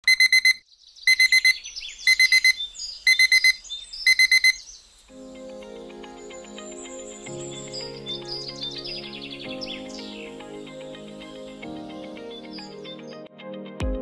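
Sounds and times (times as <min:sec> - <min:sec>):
digital alarm clock beeping: 0:00.0 - 0:04.6
birds chirping: 0:00.1 - 0:13.2
soft music with held notes: 0:05.1 - 0:14.0.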